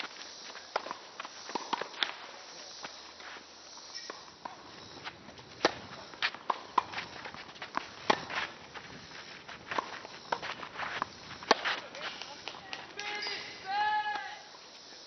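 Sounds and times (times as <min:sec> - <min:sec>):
shoes scuffing on court: 0:00.0 - 0:14.3
tennis ball bouncing: 0:00.7 - 0:02.2, 0:04.0 - 0:08.9, 0:09.5 - 0:13.4
tennis racquets striking ball: 0:00.7 - 0:02.2, 0:04.0 - 0:08.6, 0:09.6 - 0:13.5.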